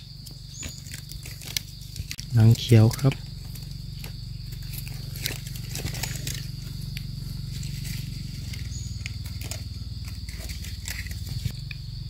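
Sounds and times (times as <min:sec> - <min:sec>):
high-pitched insect drone: 0:00.0 - 0:12.0
low steady rumble: 0:00.0 - 0:12.0
rustles: 0:00.0 - 0:12.0.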